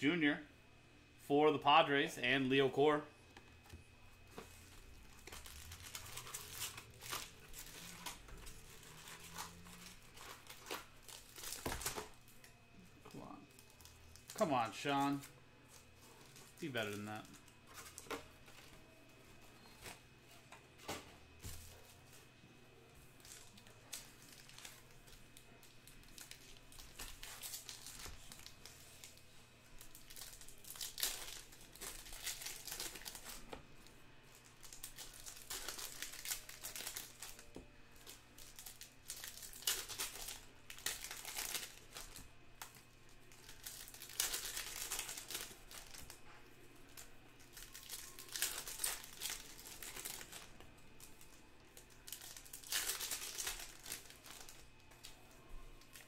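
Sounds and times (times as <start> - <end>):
foil wrappers crinkling and tearing: 4.3 - 12.5, 23.1 - 56.0.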